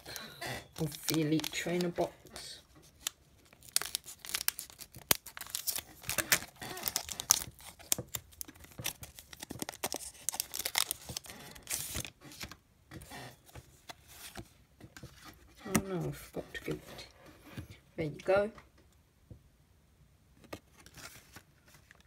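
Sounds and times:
foil wrapper tearing and crinkling: 0.0 - 12.5.

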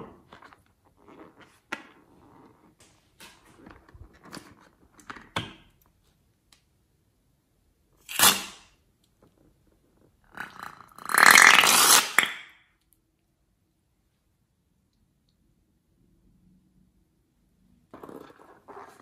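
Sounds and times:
scissors cutting balloon: 8.0 - 8.7.

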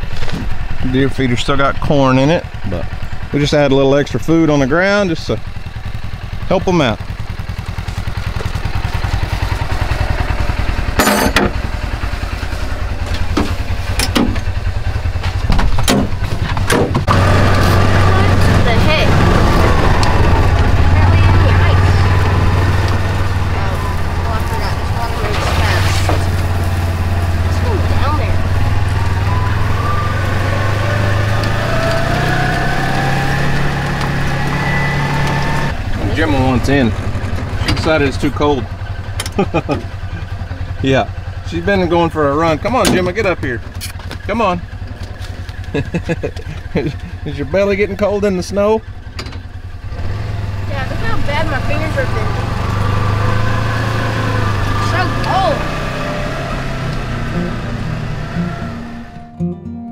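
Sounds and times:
utility vehicle engine idling: 0.0 - 59.3
clunks and knocks: 10.9 - 11.7, 13.0 - 14.6, 15.2 - 17.7, 37.0 - 38.4, 42.8 - 44.2, 49.1 - 49.6.

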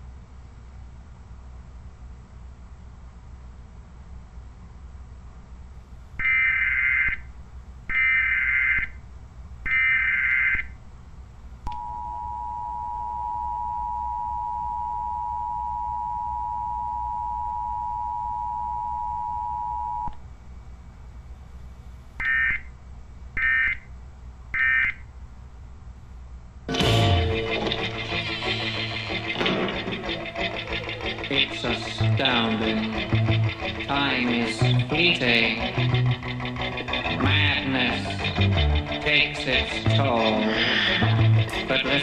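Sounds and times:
two-tone attention signal: 11.7 - 20.1.

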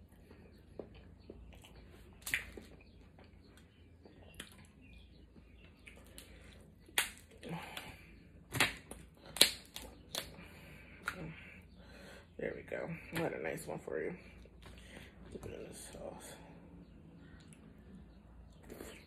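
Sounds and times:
crab shells cracking: 5.9 - 7.9, 8.5 - 10.4.

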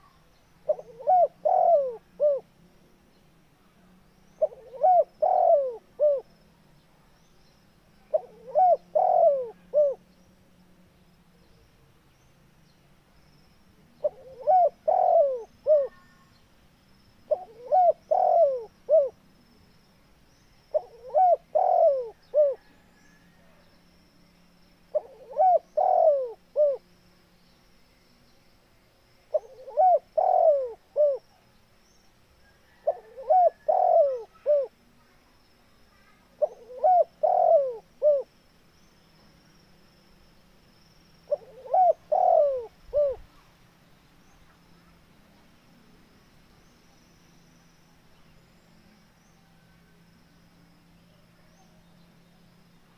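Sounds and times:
dove cooing: 0.0 - 2.5, 4.4 - 6.3, 8.1 - 10.0, 14.0 - 16.2, 17.3 - 19.2, 20.7 - 23.3, 24.9 - 26.8, 29.3 - 31.2, 32.7 - 34.8, 36.4 - 38.3, 41.3 - 43.3.

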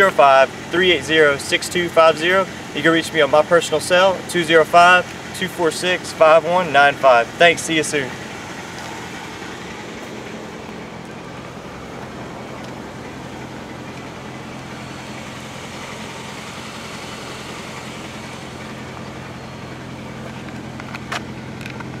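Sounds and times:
low mechanical hum: 8.1 - 22.0.

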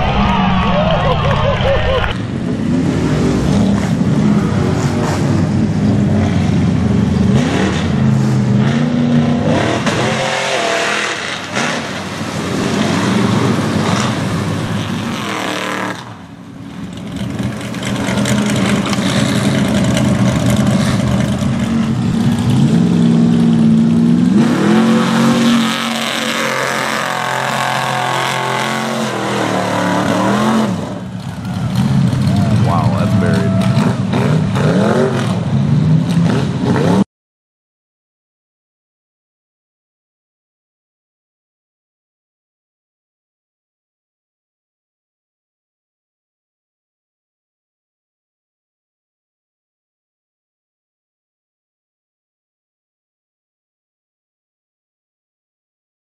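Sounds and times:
truck engine revving: 0.0 - 37.0
tyres churning in mud: 8.6 - 37.0.

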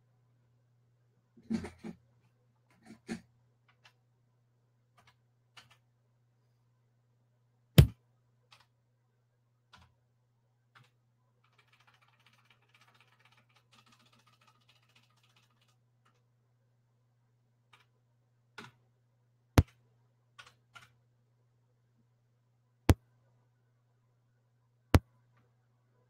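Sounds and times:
faint steady hum: 0.0 - 11.7, 13.7 - 26.0
faint patter of quiet ticks: 10.7 - 16.4.

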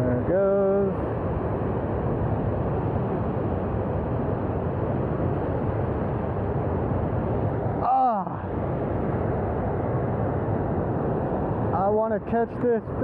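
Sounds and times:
water rushing through spillway: 0.1 - 10.3.

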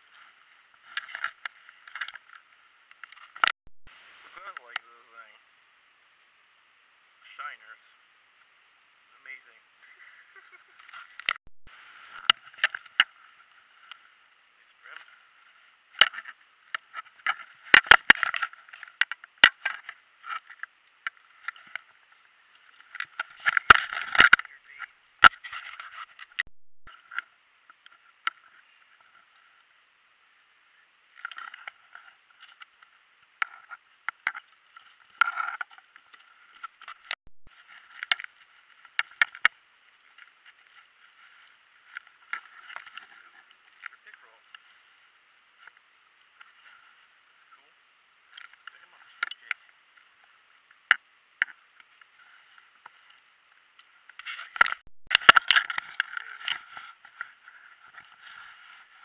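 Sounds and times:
rustling: 31.1 - 59.0.

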